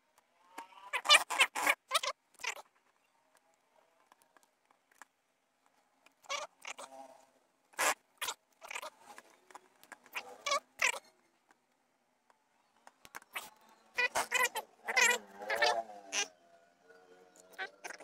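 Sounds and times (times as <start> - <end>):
balloons squeaking and rustling: 0.8 - 2.7, 7.7 - 11.1, 13.0 - 16.3.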